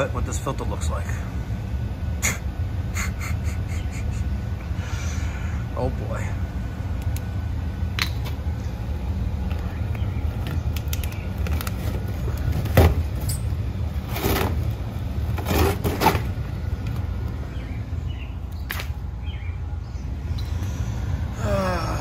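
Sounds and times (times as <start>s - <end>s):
steady low hum: 0.0s - 22.0s
air filter scraping and rustling: 10.2s - 17.0s.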